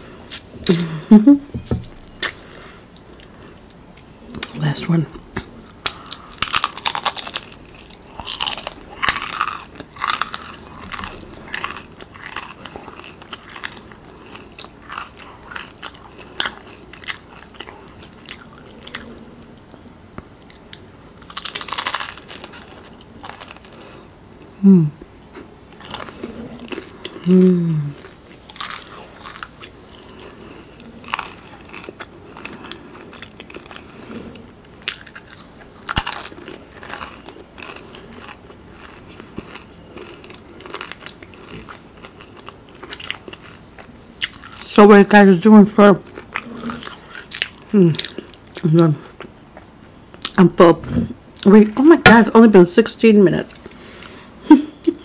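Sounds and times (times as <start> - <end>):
crunching and chewing food: 1.7 - 52.4.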